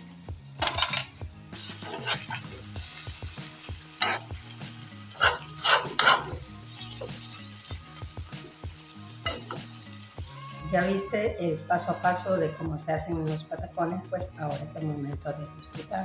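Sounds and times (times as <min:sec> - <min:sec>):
egg sizzling in a frying pan: 0:00.0 - 0:10.6
metal spoon scraping a pan: 0:00.6 - 0:03.0, 0:04.0 - 0:04.5, 0:05.1 - 0:07.4.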